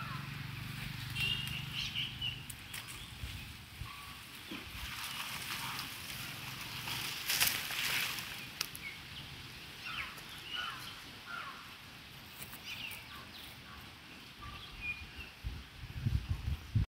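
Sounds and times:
bird chirps and calls: 0:01.1 - 0:07.1, 0:07.9 - 0:11.7, 0:12.4 - 0:15.5
low rumbling on microphone: 0:14.9 - 0:16.9.

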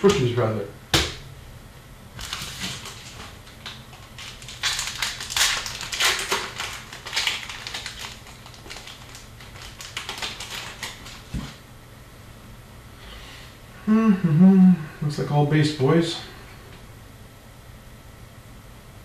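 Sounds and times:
cards clicking and wrapper crinkling: 0:02.2 - 0:11.6.

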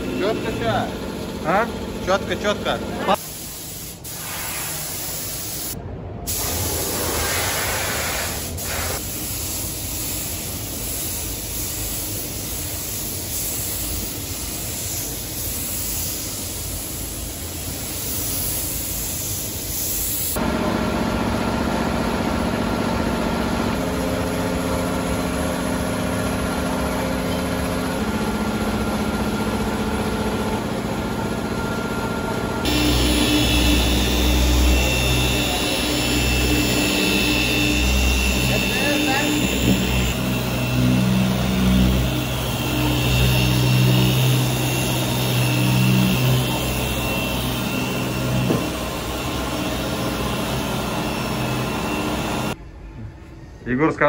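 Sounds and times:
spray gun hissing: 0:03.1 - 0:20.4, 0:32.6 - 0:52.6
low whirring: 0:28.5 - 0:53.1
hum with held tones: 0:31.6 - 0:53.6.

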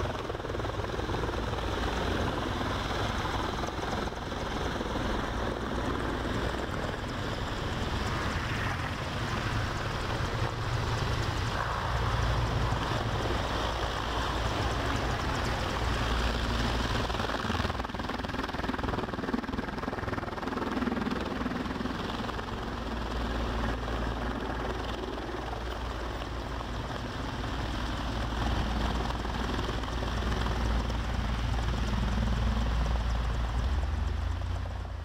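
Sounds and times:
helicopter rotor rumble: 0:00.0 - 0:35.0.

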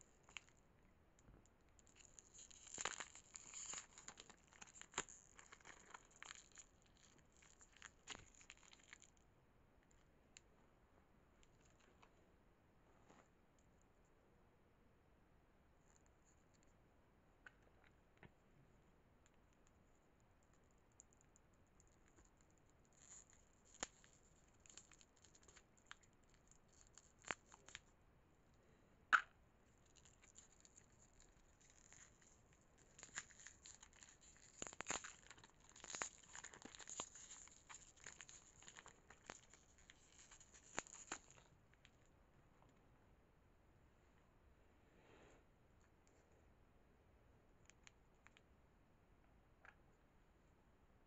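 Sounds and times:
plastic wrapper crinkling: 0:01.7 - 0:09.2, 0:20.5 - 0:27.9, 0:29.8 - 0:42.0.

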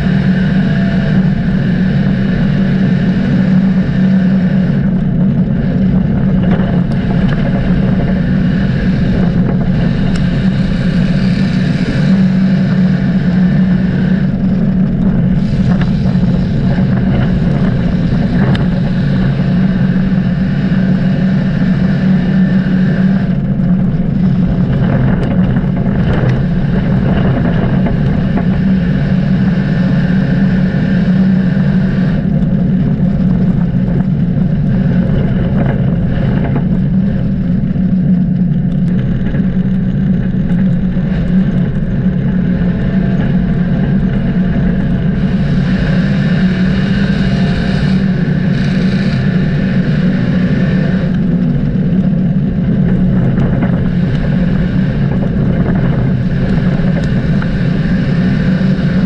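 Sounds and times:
race car engine droning: 0:00.0 - 0:59.0.

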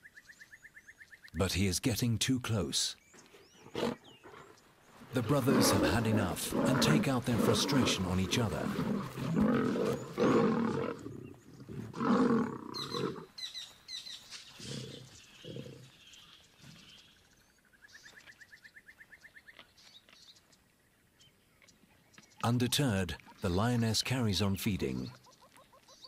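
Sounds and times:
lions growling while fighting: 0:03.6 - 0:13.3, 0:14.6 - 0:15.9.

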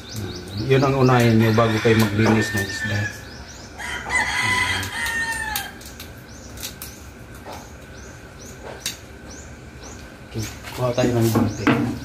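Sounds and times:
rooster crowing: 0:01.3 - 0:06.0.

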